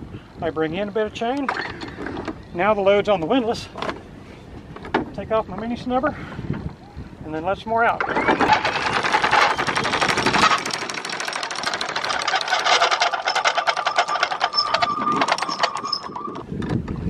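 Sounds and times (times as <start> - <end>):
windlass motor whine: 6.3 - 17.0
anchor chain links clicking: 8.3 - 16.4.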